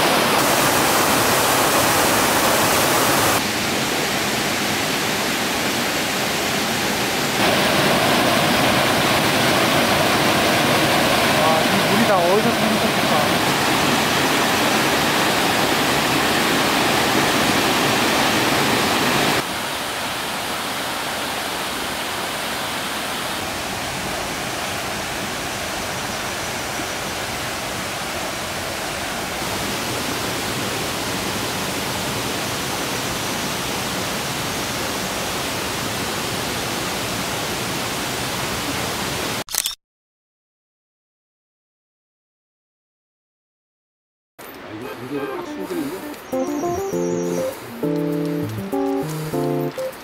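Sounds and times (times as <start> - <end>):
stream rushing over boulders: 0.0 - 39.4.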